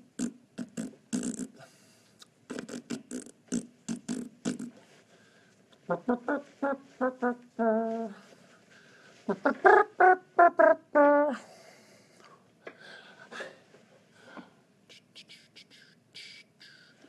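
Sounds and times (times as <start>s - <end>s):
man making mouth pops: 0.0s - 4.9s.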